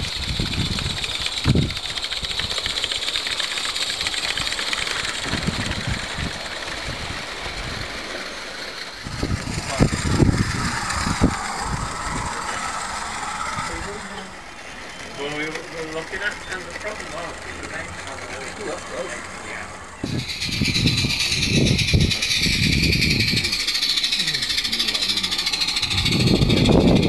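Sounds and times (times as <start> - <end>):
model train rattling on track: 0.0 - 27.0
low rumbling thumps: 9.0 - 14.5, 20.0 - 27.0.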